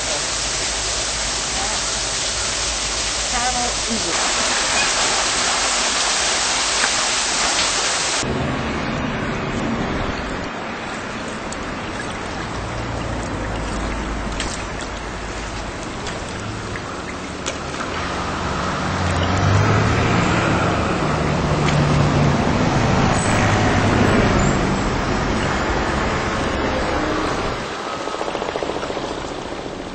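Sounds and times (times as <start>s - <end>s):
motor vehicle passing: 10.9s - 29.8s.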